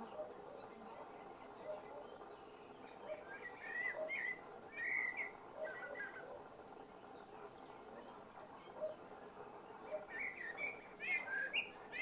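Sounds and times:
blackbird singing: 1.4 - 6.4, 9.8 - 12.0.

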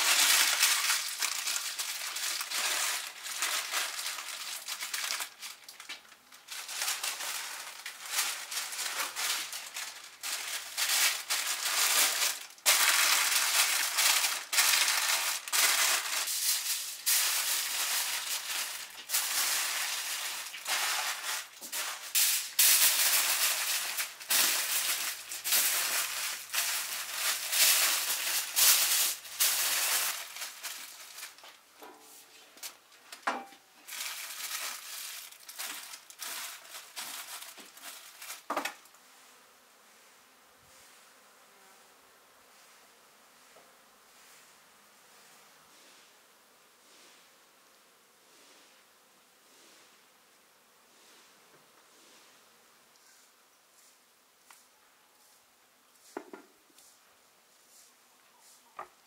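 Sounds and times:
foil and paper crinkling: 0.0 - 31.7, 32.6 - 39.0.

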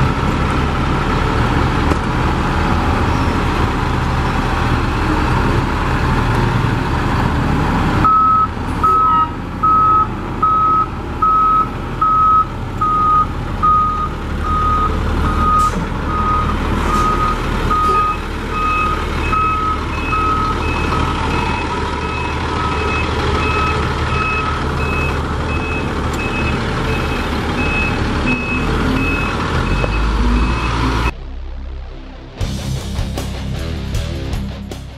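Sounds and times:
truck diesel engine running: 0.0 - 34.9
reversing alarm beeping: 8.0 - 31.1.

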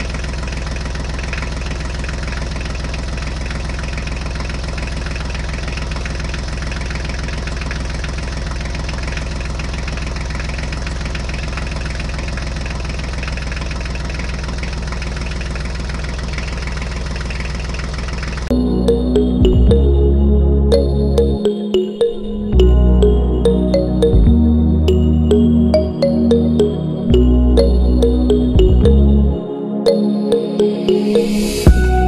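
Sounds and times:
tractor engine idling: 0.0 - 19.0.

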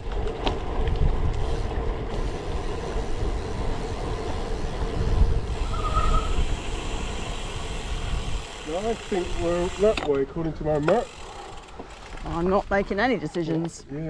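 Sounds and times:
wind rumbling on microphone: 0.0 - 10.7
bike tyres humming on tarmac: 0.0 - 13.7
brief squeal: 5.6 - 6.4.

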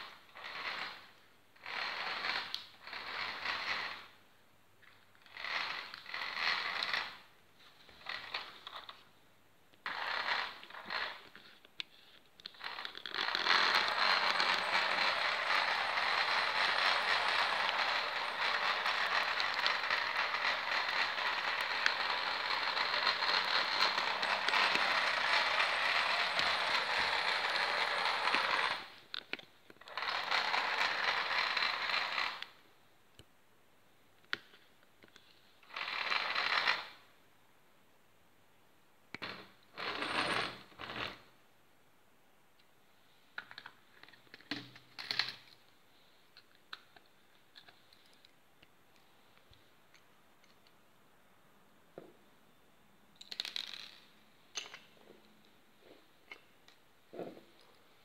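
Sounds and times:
toy electric motor whirring: 0.4 - 4.1, 5.3 - 7.2, 12.5 - 29.0, 29.8 - 32.6, 35.7 - 37.0.

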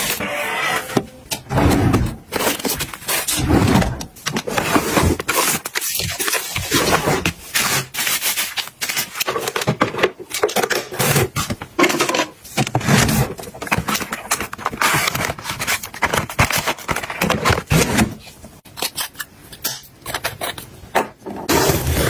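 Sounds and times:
packaging scraping and tapping: 2.3 - 3.4, 4.0 - 18.2.

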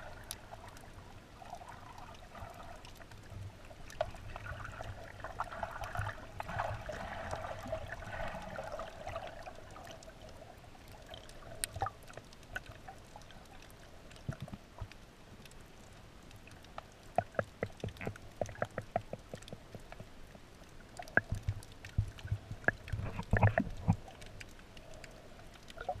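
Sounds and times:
underwater bubbling and sloshing: 0.0 - 26.0
sharp underwater clicks and knocks: 14.1 - 15.6, 16.6 - 26.0.

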